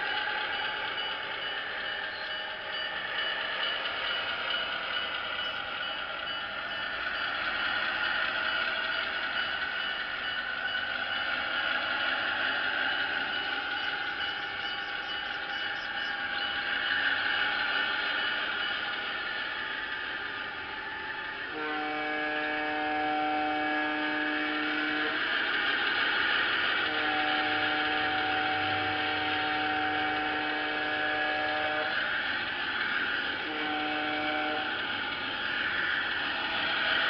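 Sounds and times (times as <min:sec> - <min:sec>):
model train whirring on track: 0:00.0 - 0:37.0
model locomotive air horn: 0:21.5 - 0:25.3, 0:26.8 - 0:32.2, 0:33.4 - 0:34.8.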